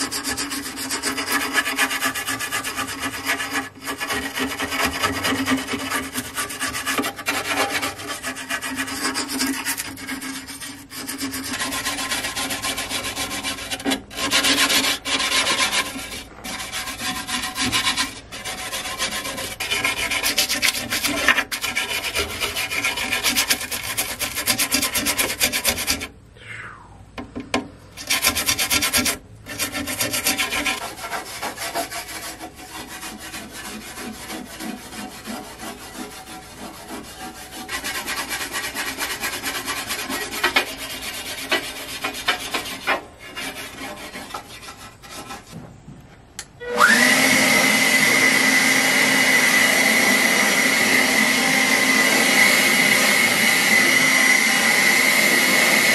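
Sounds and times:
wire brush scrubbing metal: 0.0 - 26.1, 27.9 - 45.7, 46.7 - 55.9
leaf blower whining: 46.6 - 55.9.

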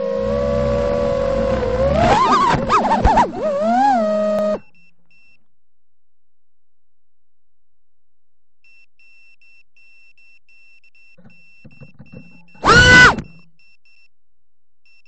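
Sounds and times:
drone motors whining: 0.0 - 4.7, 11.8 - 13.4.

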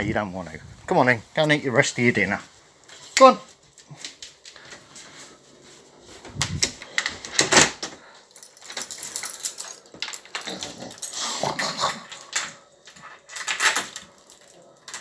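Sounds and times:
door chain rattling: 8.3 - 15.0.

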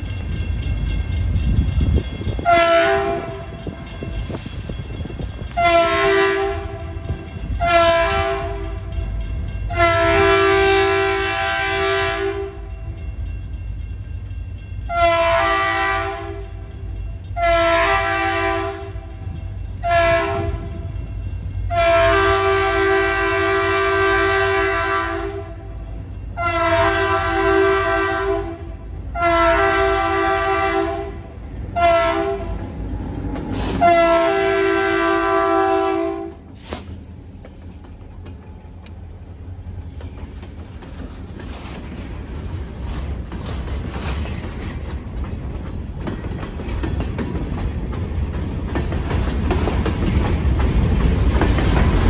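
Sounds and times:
locomotive engine rumble: 0.0 - 52.0
train clanking: 0.0 - 52.0
locomotive horn blasts: 2.4 - 3.8, 5.6 - 9.0, 9.7 - 12.8, 14.8 - 16.7, 17.4 - 19.1, 19.8 - 21.0, 21.7 - 25.8, 26.4 - 32.6, 33.6 - 36.6.

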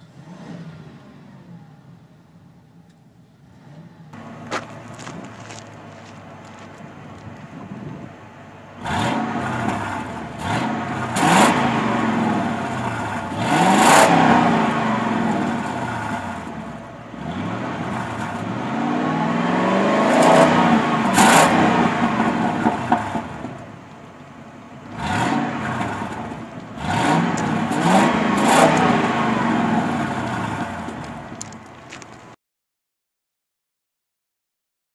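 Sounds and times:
car engine idling and revving: 0.0 - 32.4.

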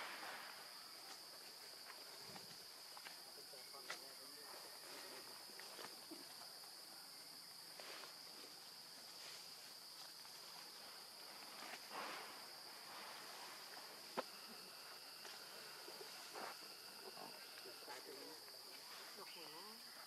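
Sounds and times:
high-pitched insect drone: 9.2 - 20.0.

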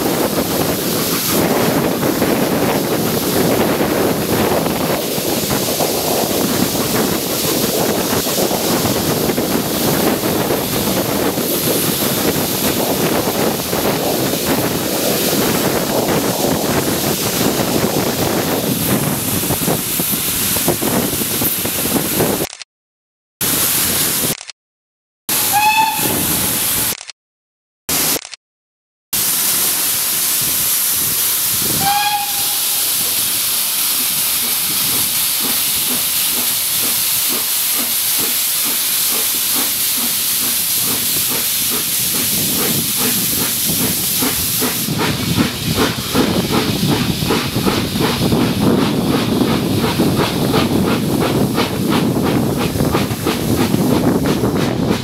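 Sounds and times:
steam hissing and rushing air: 0.0 - 22.4, 23.4 - 24.4, 25.3 - 27.0, 29.2 - 55.0
train rhythmic beat: 0.0 - 22.4, 25.3 - 27.0, 29.2 - 55.0
train whistle toots: 25.3 - 26.7, 31.7 - 32.9.

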